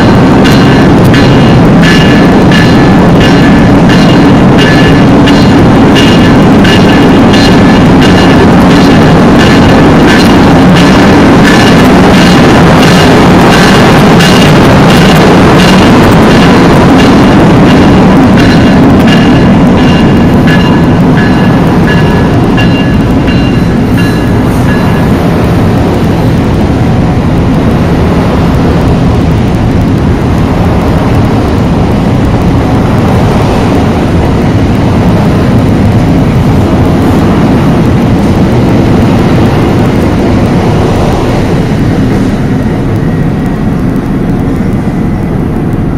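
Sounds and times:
locomotive electronic bell ringing: 0.0s - 27.2s
train wheels rumbling on rail: 0.0s - 45.9s.

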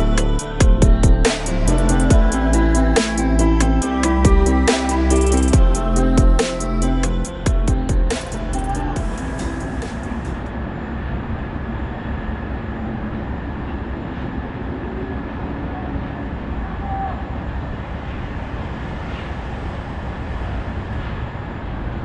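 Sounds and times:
electronic music: 0.0s - 10.6s
low rumble of city traffic: 0.0s - 22.0s.

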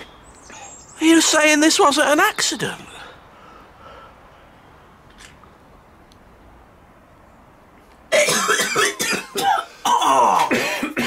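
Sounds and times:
man coughing and spluttering: 8.1s - 11.0s.

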